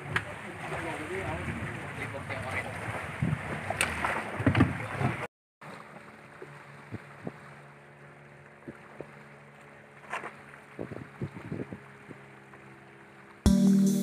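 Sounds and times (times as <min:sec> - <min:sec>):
choppy water: 0:00.0 - 0:13.5
wind: 0:00.0 - 0:13.5
boat knocking: 0:03.2 - 0:05.3.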